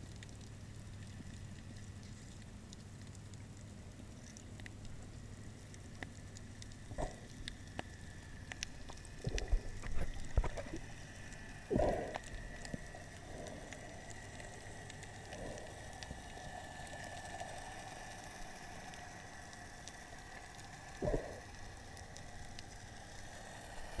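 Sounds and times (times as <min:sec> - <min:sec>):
faint steady hum: 0:00.0 - 0:24.0
muffled underwater bubbling: 0:04.9 - 0:17.0, 0:20.9 - 0:21.7.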